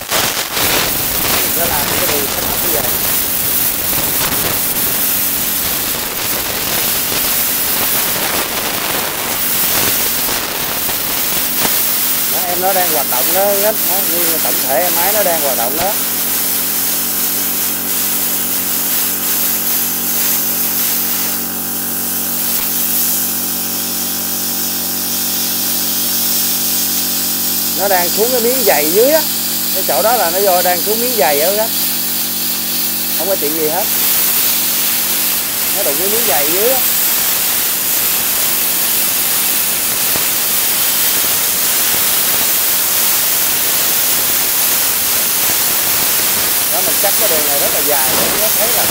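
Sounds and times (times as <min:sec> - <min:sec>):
plasma cutter hissing: 0:00.0 - 0:48.9.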